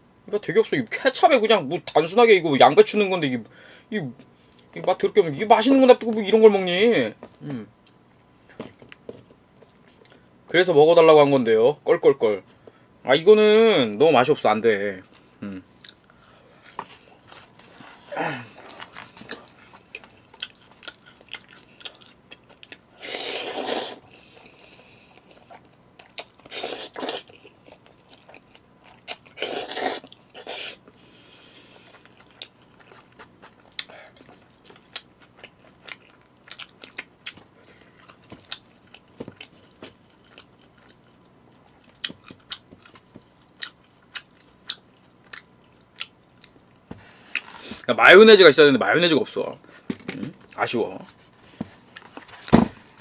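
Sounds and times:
wet chewing: 18.6s - 24.0s
noodle slurps: 23.0s - 24.0s, 29.4s - 30.8s.

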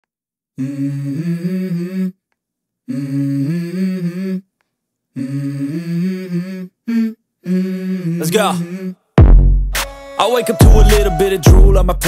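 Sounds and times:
person humming a melody: 0.6s - 2.2s, 5.2s - 9.0s, 10.2s - 12.0s.

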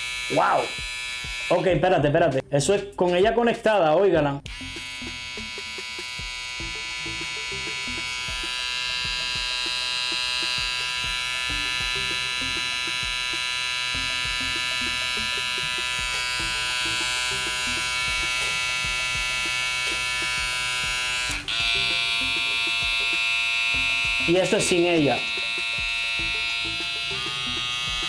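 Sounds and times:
electric trimmer buzzing: 0.0s - 1.9s, 4.5s - 28.0s.

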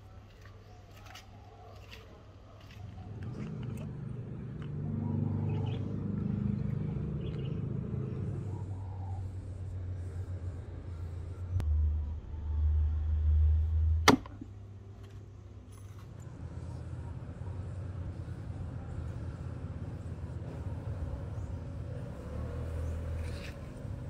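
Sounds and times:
axe chopping into wood: 14.0s - 14.4s.

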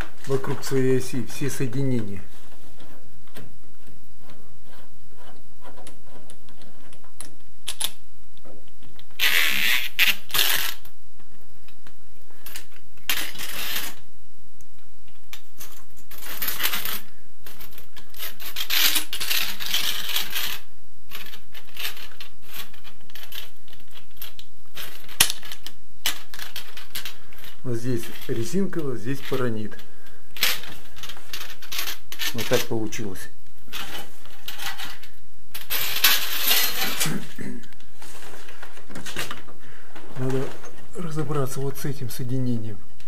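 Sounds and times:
rustling noise: 0.0s - 7.1s, 33.7s - 41.9s.

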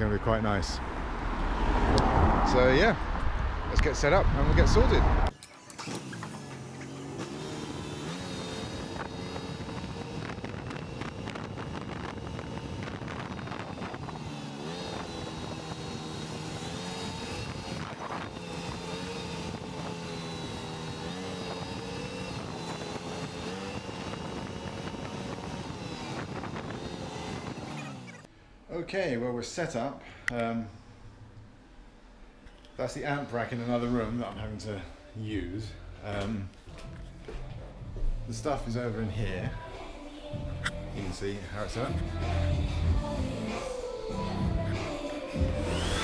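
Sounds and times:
utility vehicle engine running: 5.1s - 28.3s, 44.3s - 46.0s.

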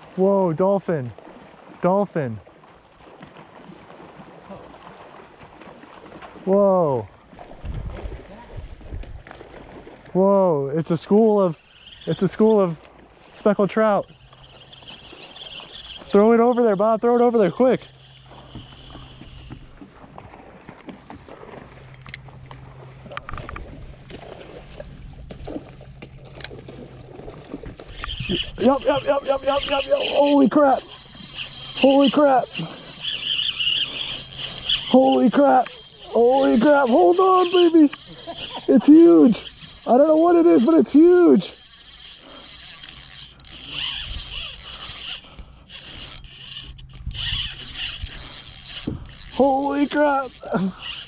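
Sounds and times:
boat motor hum: 0.0s - 51.0s
fishing reel drag buzzing: 10.8s - 19.8s, 27.8s - 51.0s.

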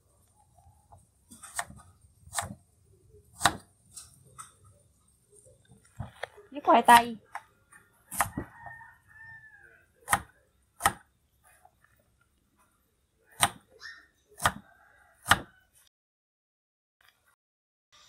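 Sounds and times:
knife chopping on wooden board: 1.3s - 2.6s, 3.4s - 3.7s, 8.1s - 8.5s, 10.0s - 11.1s, 13.4s - 13.7s, 14.4s - 14.6s, 15.2s - 15.5s.

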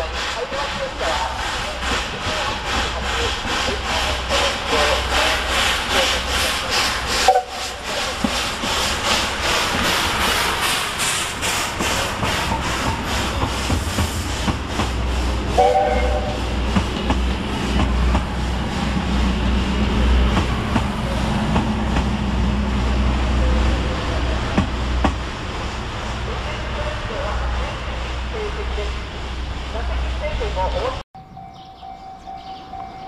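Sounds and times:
steam locomotive chuffing: 0.0s - 31.0s
coaches rumbling on rails: 0.0s - 33.0s
locomotive whistle: 7.3s - 7.6s, 15.6s - 16.5s.

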